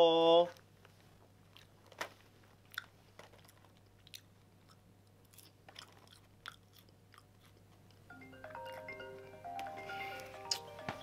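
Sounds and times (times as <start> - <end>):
man eating popcorn: 1.4 - 8.9, 10.2 - 10.8.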